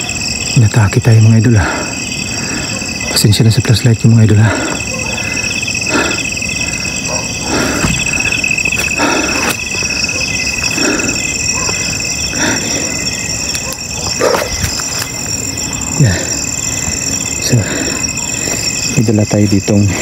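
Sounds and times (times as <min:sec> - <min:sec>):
crickets chirring: 0:00.0 - 0:20.0
rustling through undergrowth: 0:12.8 - 0:15.4.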